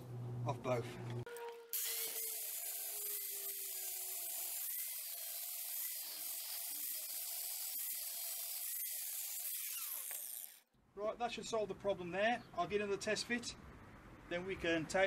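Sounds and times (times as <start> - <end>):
angle grinder grinding metal: 1.3 - 10.6.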